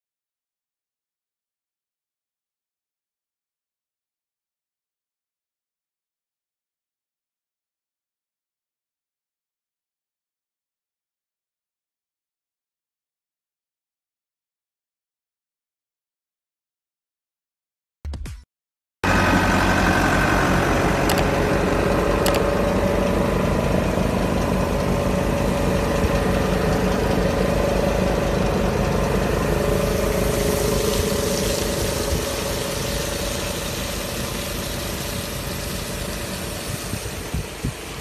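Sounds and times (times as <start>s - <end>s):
tractor diesel engine running: 19.0s - 38.0s
vacuum pump whine: 19.1s - 38.0s.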